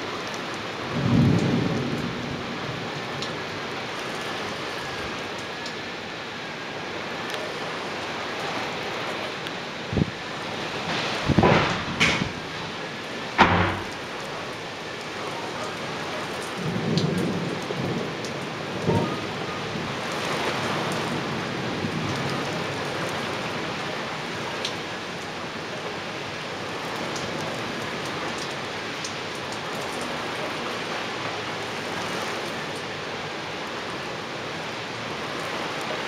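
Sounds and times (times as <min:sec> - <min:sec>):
heavy rain on tiled roofs: 0:00.0 - 0:36.0
sharp thump: 0:13.4 - 0:14.0.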